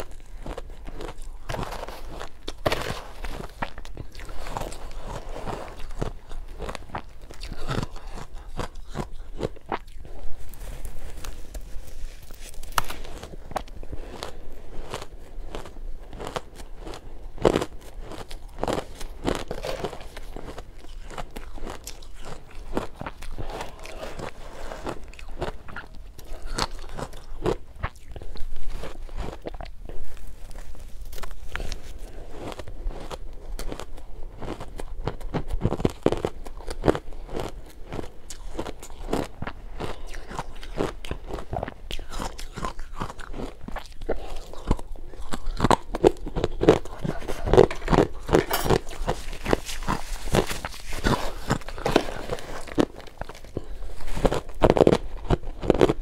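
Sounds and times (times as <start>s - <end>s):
ice crunching while chewed: 0.0s - 56.0s
spoon scraping ice in a dish: 47.2s - 52.7s.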